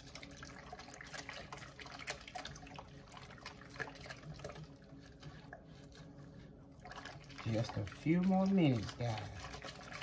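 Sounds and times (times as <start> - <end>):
liquid sloshing in a pot: 0.0 - 10.0.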